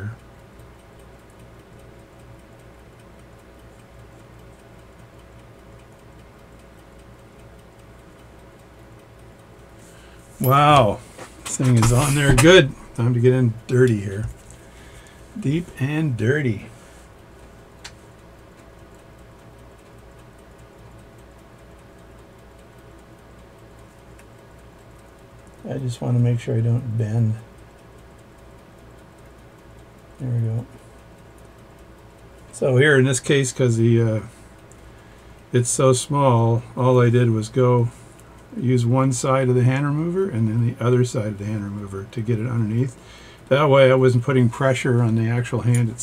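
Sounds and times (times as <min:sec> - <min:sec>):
clock ticking: 0:00.0 - 0:46.0
steady low hum: 0:00.0 - 0:46.0.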